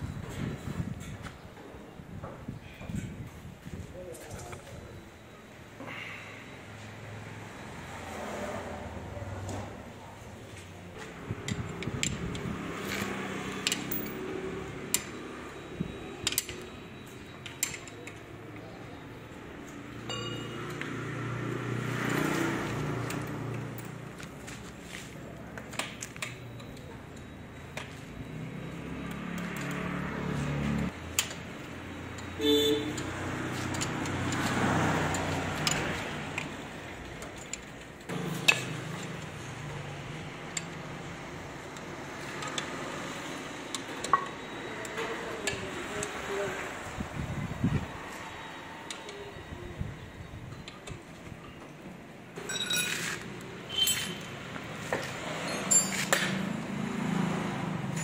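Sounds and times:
spanner clinking on metal: 16.0s - 18.3s, 20.0s - 21.2s, 31.1s - 39.4s, 52.4s - 54.3s, 55.4s - 56.4s
car horn toot: 32.4s - 33.1s.

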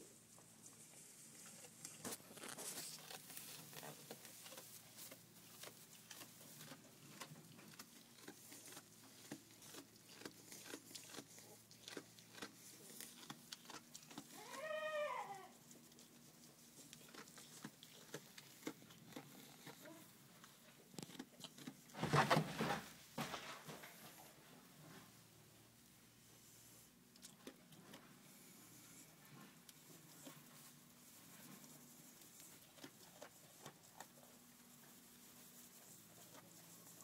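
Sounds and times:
faint clicks and rustles: 0.3s - 14.8s, 27.1s - 37.0s
goat kid bleating: 14.1s - 15.6s.

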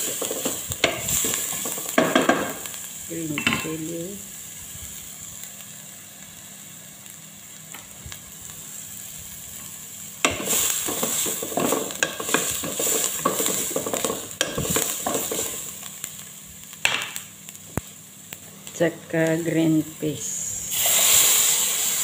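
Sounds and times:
onion sizzling in oil: 0.0s - 22.0s.

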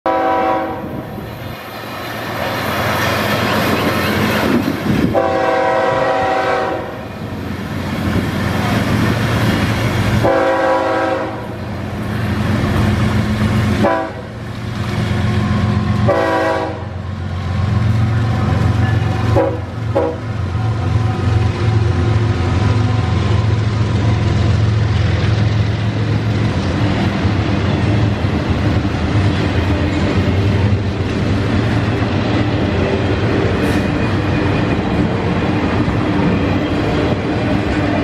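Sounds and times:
train horn blasts: 0.1s - 1.1s, 5.1s - 7.1s, 10.2s - 11.6s, 13.8s - 14.4s, 16.0s - 17.2s, 18.2s - 23.3s
train engines and wheels rumbling: 0.1s - 38.0s.

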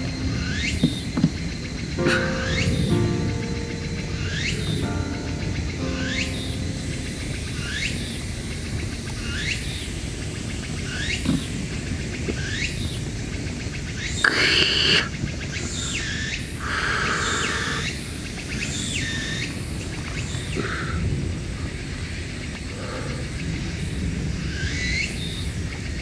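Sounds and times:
high rising chirp: 0.0s - 11.2s.

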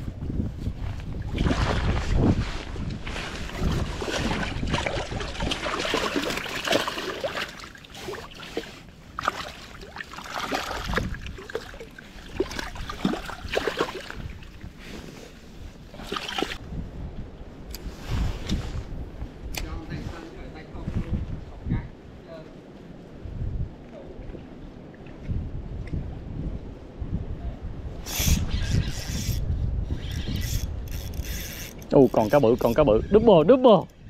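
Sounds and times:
wind noise on microphone: 0.0s - 6.8s, 10.4s - 34.0s
creek water gurgling and splashing: 1.0s - 15.0s, 15.9s - 16.6s.

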